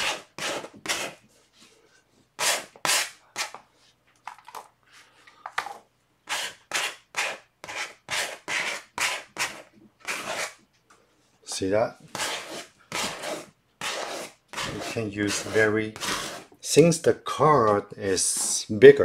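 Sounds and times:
plastic card scraping paint on canvas: 0:12.1 - 0:16.6.

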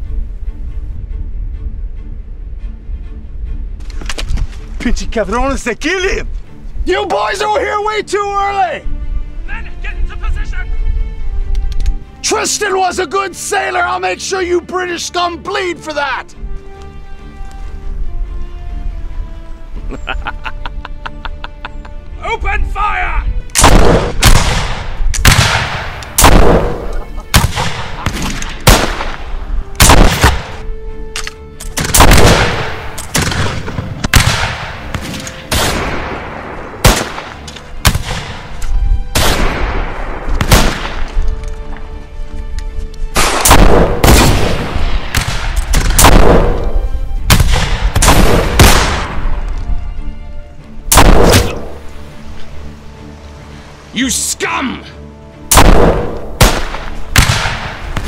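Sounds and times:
background music: 0:00.0 - 0:58.0
musket gunshots echoing: 0:23.5 - 0:41.2, 0:43.1 - 0:49.4, 0:50.9 - 0:51.9, 0:55.5 - 0:58.0.

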